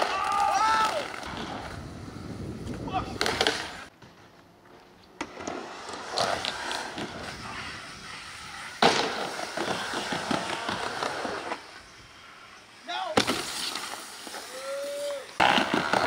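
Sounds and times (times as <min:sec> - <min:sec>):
skateboard wheels rolling on wood: 0:00.0 - 0:16.0
skateboard clack: 0:02.6 - 0:04.1, 0:05.1 - 0:11.7, 0:13.1 - 0:16.0.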